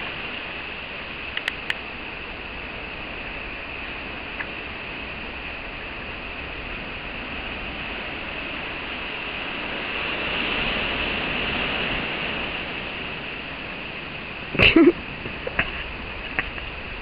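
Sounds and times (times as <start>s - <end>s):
rainforest background hiss: 0.0s - 17.0s.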